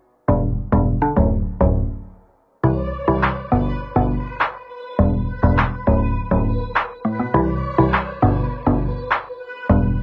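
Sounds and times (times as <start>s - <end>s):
electronic music with drum beat: 2.7s - 10.0s.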